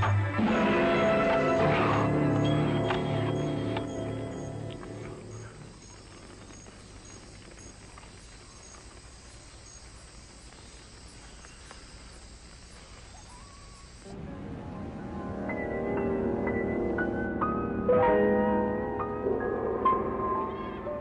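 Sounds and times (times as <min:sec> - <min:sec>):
background music: 0:00.0 - 0:05.5, 0:14.1 - 0:21.0
steady hiss: 0:00.0 - 0:17.6
crickets chirping: 0:00.0 - 0:21.0.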